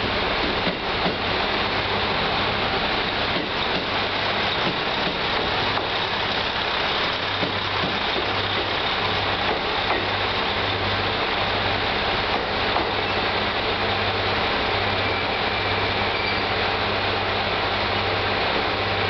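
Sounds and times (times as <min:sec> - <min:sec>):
train wheels rolling: 0:00.0 - 0:14.0
diesel engine humming: 0:01.3 - 0:15.0.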